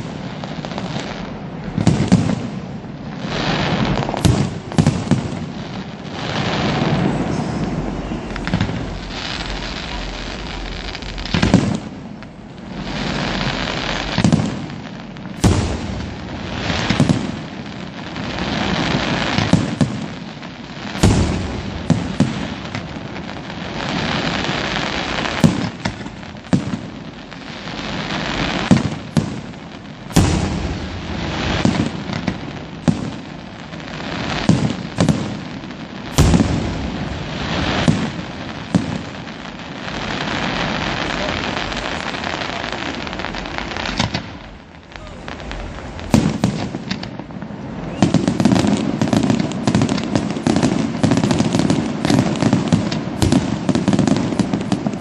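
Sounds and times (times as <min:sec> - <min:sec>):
continuous rushing hiss: 0:00.0 - 0:55.0
firework shells bursting: 0:20.9 - 0:23.2, 0:28.3 - 0:33.2, 0:36.0 - 0:39.4, 0:43.2 - 0:44.6.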